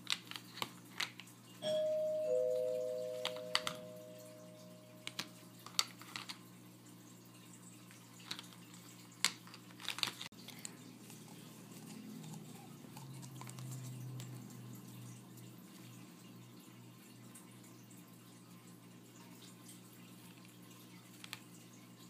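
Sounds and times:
two-note chime: 0:01.6 - 0:05.2.

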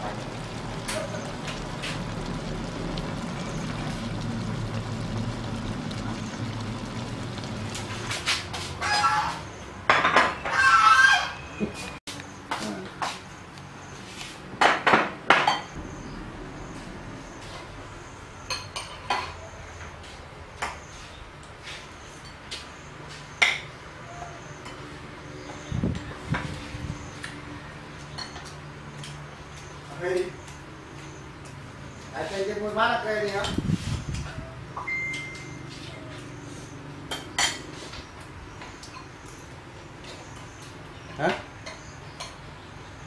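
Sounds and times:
low hum: 0:00.0 - 0:08.2, 0:15.8 - 0:18.5
wok sizzling and bubbling: 0:00.0 - 0:43.0.

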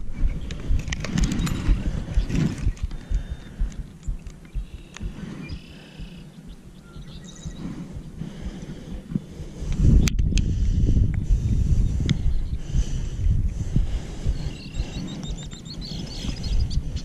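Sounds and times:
scattered clicks: 0:00.0 - 0:05.6, 0:09.0 - 0:10.5.

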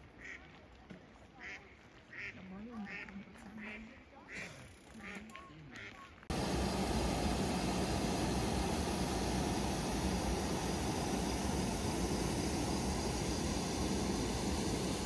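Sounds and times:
ducks quacking: 0:01.4 - 0:06.1.

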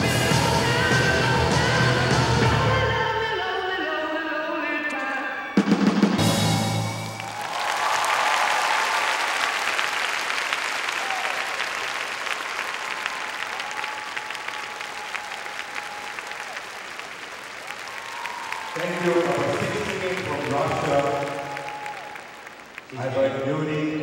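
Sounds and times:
rock and roll dance music: 0:00.0 - 0:03.3
crowd cheering: 0:06.2 - 0:23.9
crowd applause: 0:06.2 - 0:24.0.

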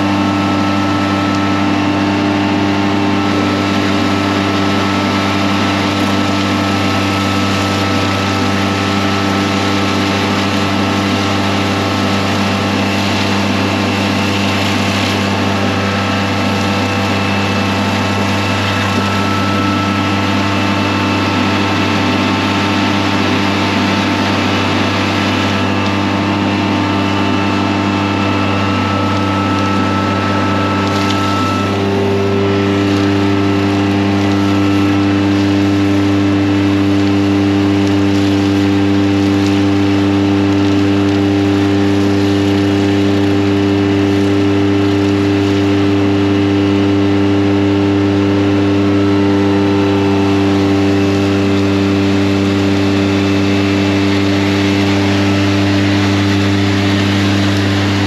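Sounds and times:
high-pressure water spray: 0:00.0 - 0:58.0
vacuum truck engine humming: 0:00.0 - 0:58.0
higher hum: 0:11.4 - 0:37.8.

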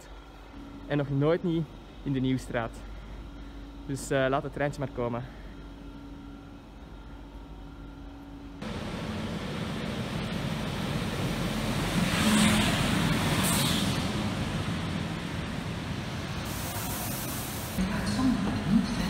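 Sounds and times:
train wheels rumbling on rails: 0:08.6 - 0:16.5.

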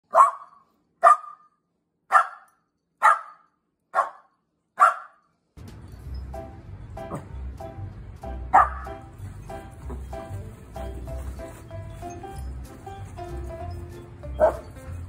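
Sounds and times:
dog barking: 0:00.0 - 0:05.3, 0:08.5 - 0:08.9, 0:14.4 - 0:14.8
music: 0:05.6 - 0:15.0.

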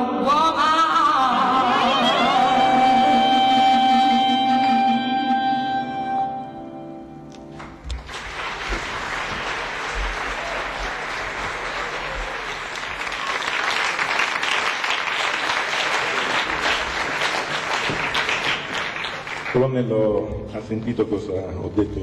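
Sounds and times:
audience applauding: 0:07.5 - 0:19.9.

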